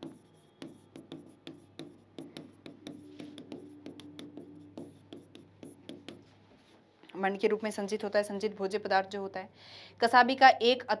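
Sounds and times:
chalk tapping and scratching on chalkboard: 0.0 - 6.7.

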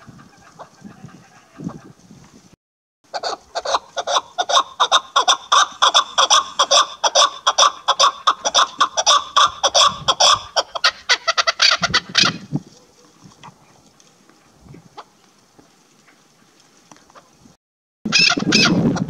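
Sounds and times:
partridge calling: 3.1 - 12.5.

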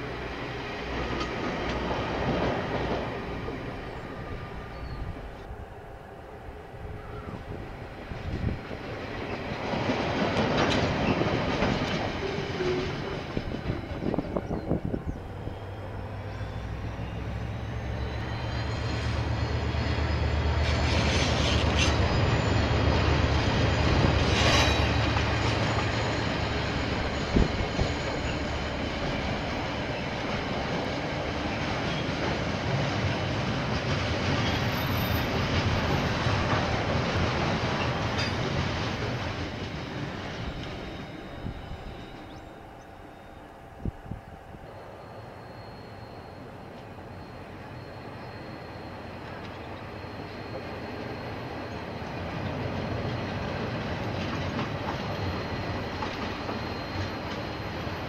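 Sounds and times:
train wheels clattering over rail joints: 8.6 - 14.3, 20.6 - 41.0, 52.0 - 58.0
high-pitched wheel squeal: 12.1 - 30.6, 39.8 - 58.0.

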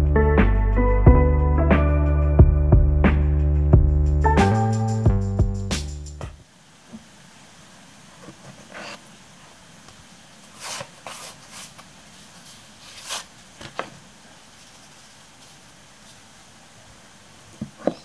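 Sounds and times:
paper cards rustling and scraping: 8.2 - 9.0, 10.4 - 14.0, 14.6 - 16.3.

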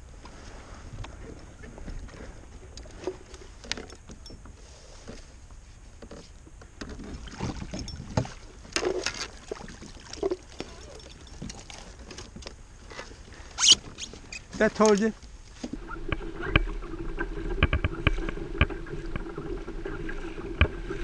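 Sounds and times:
knocks and clatter on kayak: 0.9 - 21.0
water splashes: 7.0 - 12.4
wind rumble on microphone: 15.7 - 21.0.

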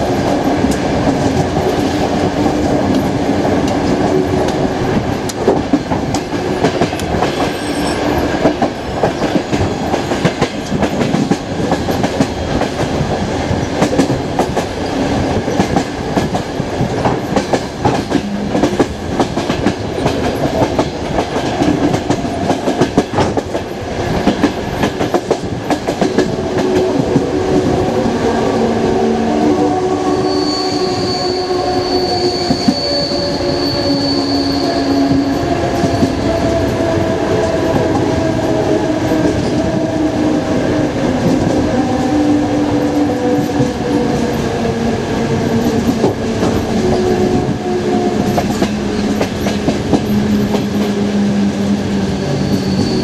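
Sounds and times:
train rumble: 0.0 - 53.0
metallic squealing tones: 30.0 - 36.5, 52.1 - 53.0.

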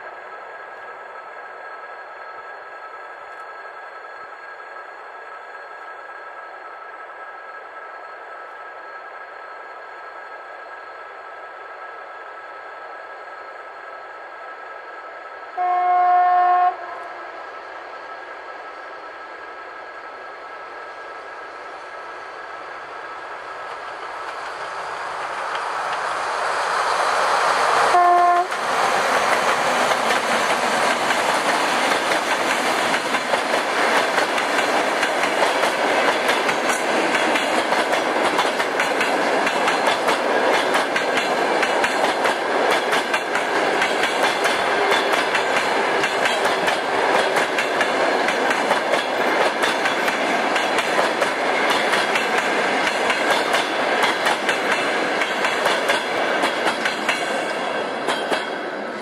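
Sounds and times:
diesel locomotive approaching: 0.0 - 59.0
train horn blast: 15.6 - 17.3, 27.9 - 28.6
train wheels clickety-clack: 23.4 - 59.0.

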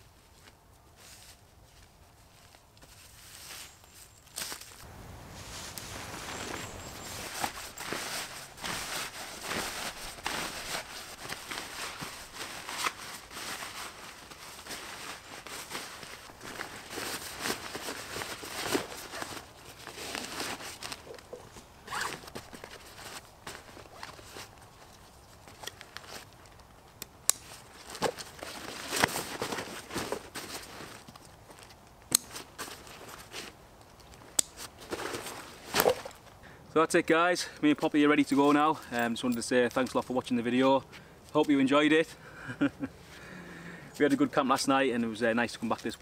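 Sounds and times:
tarp fabric rustling: 0.0 - 26.3, 27.4 - 31.2, 34.6 - 36.3
sharp buckle clicks: 26.6 - 27.5, 32.0 - 32.4, 33.8 - 34.7.

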